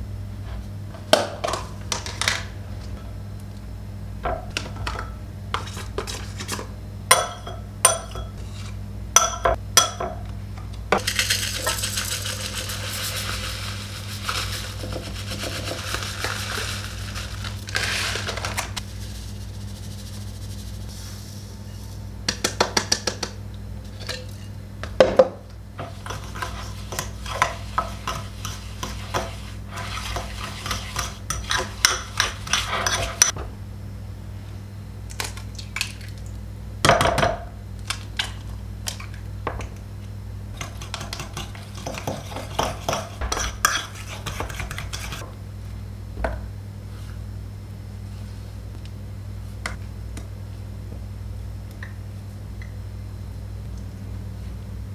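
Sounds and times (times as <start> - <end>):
steady low hum: 0.0 - 54.9
steady stirring: 11.0 - 20.9, 25.8 - 33.3, 40.6 - 45.2
utensils clinking against a bowl: 30.1 - 33.4.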